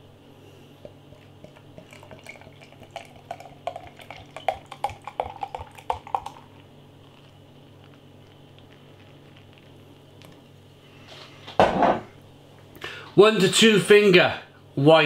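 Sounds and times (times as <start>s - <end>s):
beer glugging into glass: 0.9s - 6.5s.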